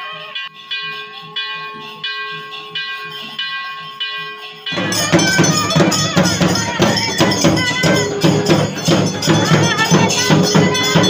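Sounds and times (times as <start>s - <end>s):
temple bells ringing: 0.0s - 11.0s
traditional music with drums: 4.7s - 11.0s.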